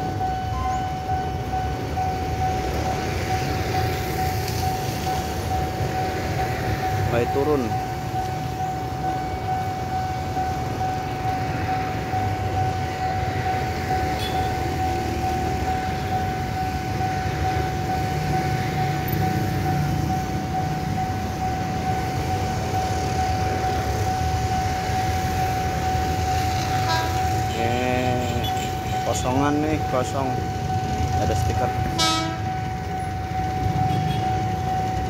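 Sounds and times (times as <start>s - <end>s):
level crossing alarm tone: 0.0s - 35.0s.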